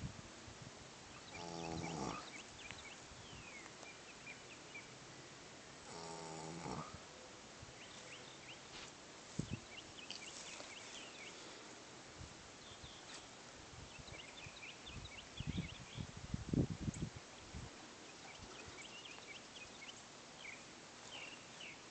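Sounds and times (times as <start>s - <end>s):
horse snoring: 1.2s - 2.4s, 5.8s - 7.0s.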